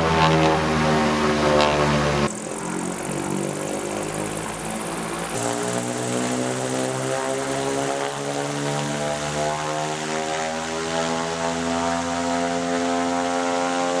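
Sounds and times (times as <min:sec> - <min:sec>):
electric motor propeller hum: 0:00.0 - 0:14.0.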